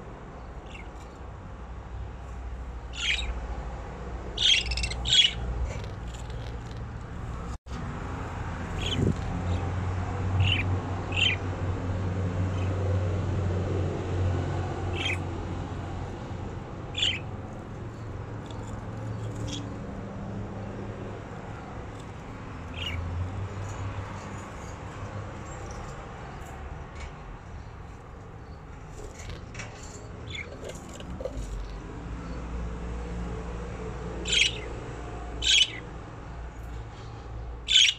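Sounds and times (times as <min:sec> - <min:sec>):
budgerigars chirping and squawking: 0:00.6 - 0:01.1, 0:02.8 - 0:03.5, 0:04.3 - 0:06.5, 0:08.7 - 0:09.6, 0:10.4 - 0:11.4, 0:12.5 - 0:12.8, 0:14.9 - 0:15.3, 0:16.9 - 0:19.8, 0:22.0 - 0:24.8, 0:30.2 - 0:32.4, 0:34.2 - 0:35.9, 0:37.6 - 0:37.9.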